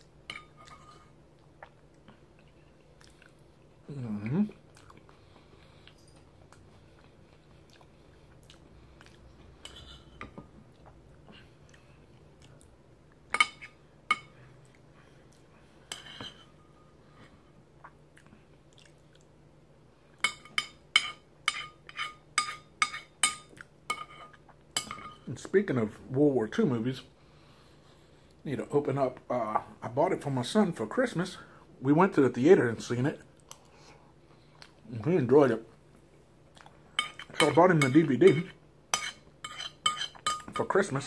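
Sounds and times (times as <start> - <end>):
person chewing: 0.6 - 10.0, 17.8 - 19.4, 36.5 - 37.3
metal spoon clinking in bowl: 39.0 - 40.6.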